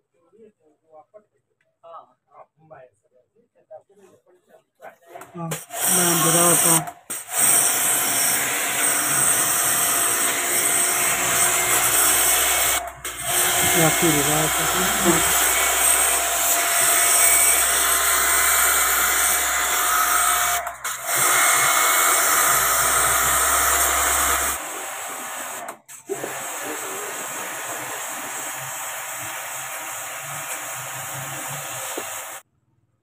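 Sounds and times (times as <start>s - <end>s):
pressure washer motor drone: 5.7s - 6.8s, 8.4s - 32.4s.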